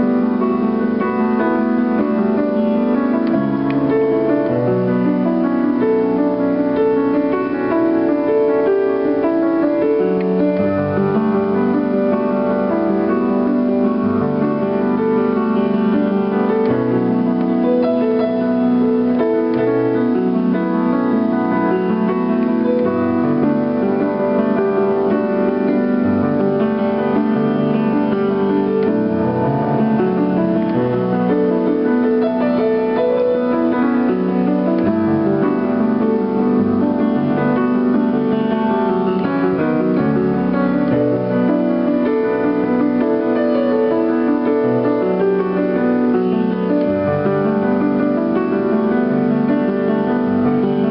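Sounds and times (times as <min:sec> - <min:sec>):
piano chords over bass line: 0:00.0 - 0:50.9.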